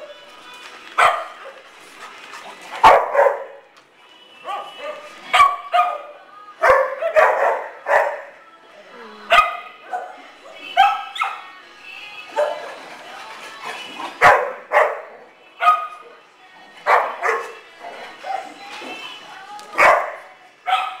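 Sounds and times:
dogs barking: 1.0 - 1.6, 2.7 - 3.6, 4.4 - 8.4, 9.3 - 11.6, 12.3 - 12.8, 14.0 - 16.0, 16.8 - 18.6, 19.7 - 21.0.

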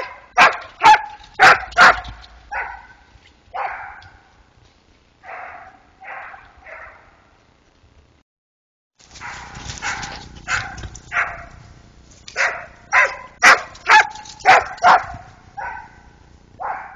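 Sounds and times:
dog barking: 0.0 - 4.3, 5.2 - 7.2, 9.2 - 11.6, 12.4 - 16.9.

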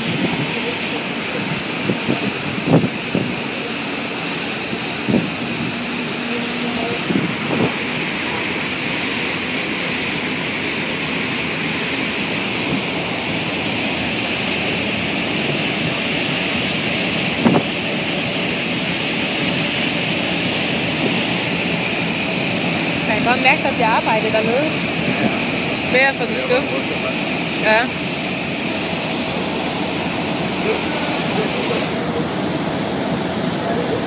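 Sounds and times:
wind on microphone: 0.0 - 3.5, 4.7 - 8.2, 17.1 - 18.0
steady high hum: 0.0 - 34.0
wake water rushing: 0.0 - 34.0.

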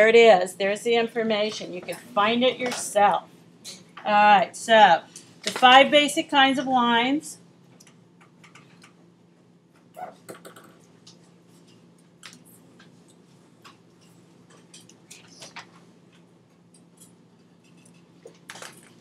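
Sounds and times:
low electrical hum: 0.0 - 19.0
faint clicks and taps: 7.7 - 9.0.

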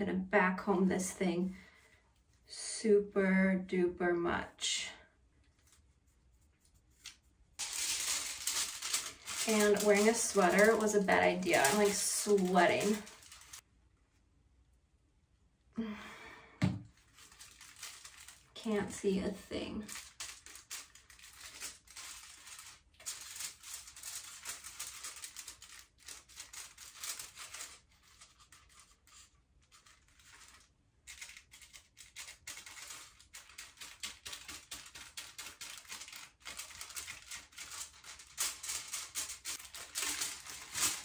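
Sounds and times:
foil crinkling: 7.6 - 13.6, 17.0 - 41.0.

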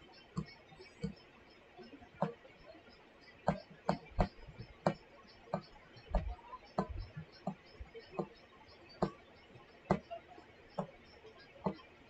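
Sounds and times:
stylus tapping on screen: 0.3 - 1.2, 3.4 - 12.0.

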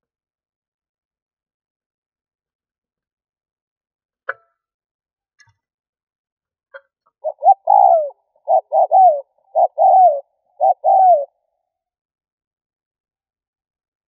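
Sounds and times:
dove cooing: 7.2 - 11.4.

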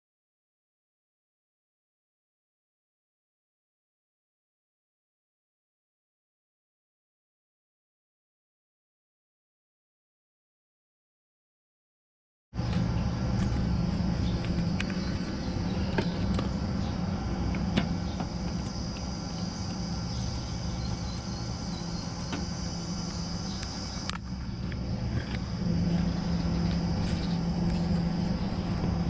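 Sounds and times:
high buzz: 12.6 - 29.0
low motor hum: 12.6 - 29.0.

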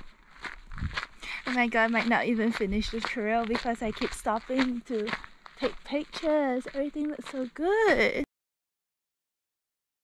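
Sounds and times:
woman speaking: 1.2 - 8.3.

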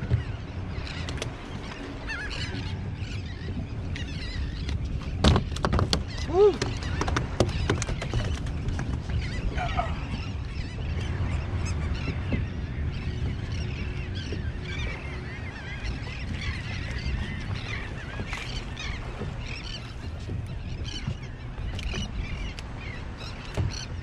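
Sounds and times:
flock of birds calling: 6.0 - 24.0.

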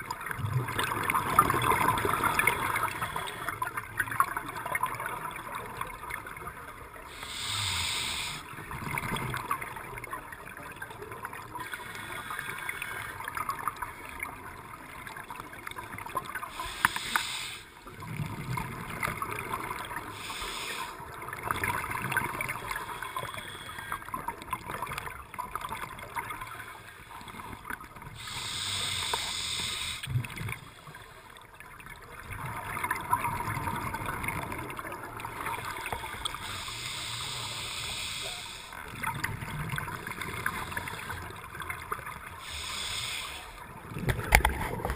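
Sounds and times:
exhaled bubbles rumbling: 0.0 - 6.1, 32.0 - 36.6, 38.8 - 42.6
underwater crackle: 0.0 - 44.9
hissing regulator inhalations: 7.1 - 8.5, 11.6 - 13.2, 16.5 - 17.8, 20.1 - 21.0, 22.6 - 24.1, 28.1 - 30.1, 35.6 - 38.8, 42.4 - 43.6.

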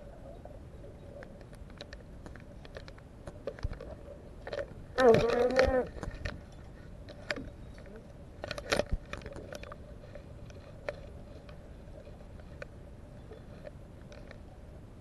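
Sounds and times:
faint steady hum: 0.0 - 15.0
muffled clicks and knocks: 1.2 - 11.6.

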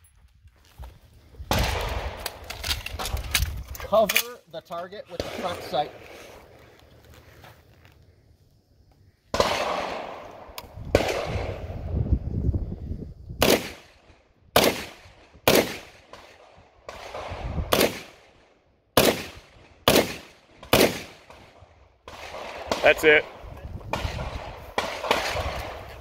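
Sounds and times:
rifle shots echoing: 5.1 - 6.1, 9.3 - 11.8, 13.4 - 14.0, 14.6 - 26.0.

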